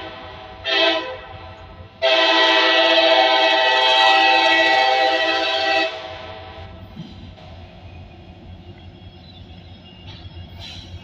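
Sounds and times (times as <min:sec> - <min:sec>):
locomotive air horn blasts: 0:00.0 - 0:06.7.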